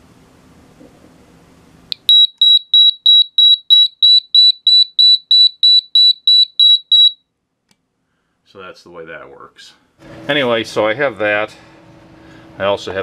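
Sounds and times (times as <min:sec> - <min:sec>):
rapid high-pitched alarm beeping: 0:02.1 - 0:07.2.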